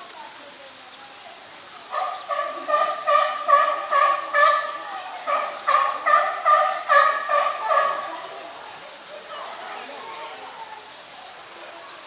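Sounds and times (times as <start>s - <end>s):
bird calling: 1.8s - 9.8s.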